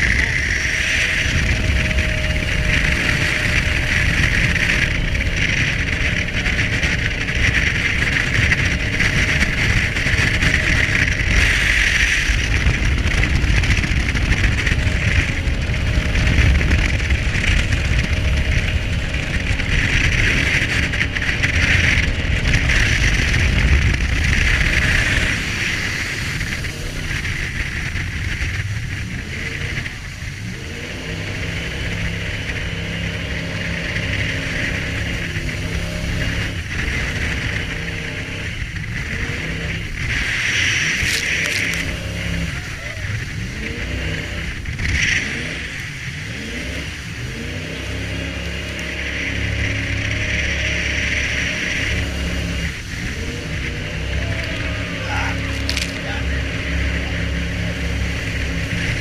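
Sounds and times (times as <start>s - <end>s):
jet boat engine and water rush: 0.0s - 59.0s.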